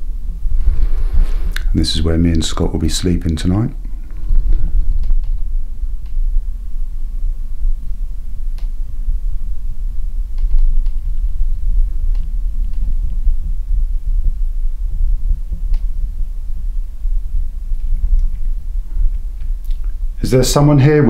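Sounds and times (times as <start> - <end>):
microphone handling rumble: 0.0 - 21.0
faint clicks: 5.0 - 5.4, 10.3 - 11.0, 12.0 - 13.2, 15.6 - 16.0.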